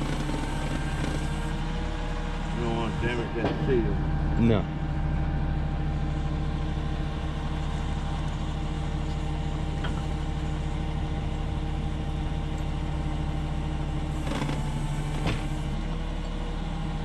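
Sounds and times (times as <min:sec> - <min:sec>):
machine humming: 0:00.0 - 0:12.6.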